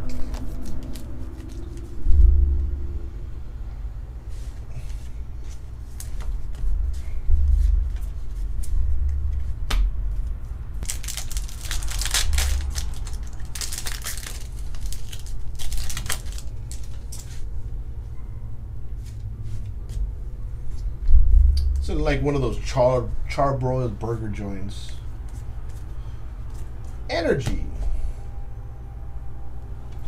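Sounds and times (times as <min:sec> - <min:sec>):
steady low hum: 0:00.0 - 0:30.0
foil wrapper crinkling and tearing: 0:10.8 - 0:17.5.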